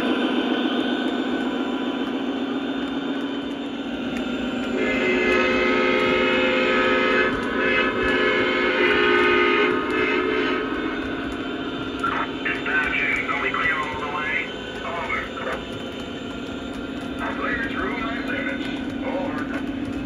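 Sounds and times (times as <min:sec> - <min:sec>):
model locomotive running on track: 0:00.0 - 0:20.0
model train horn blasts: 0:04.7 - 0:11.1.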